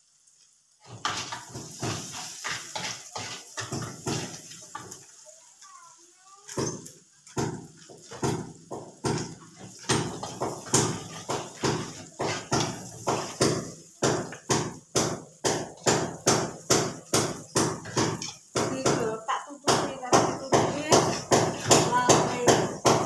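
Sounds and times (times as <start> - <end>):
metal spatula scraping a wok: 0.8 - 5.2, 9.1 - 14.5, 17.0 - 18.5, 20.4 - 22.8.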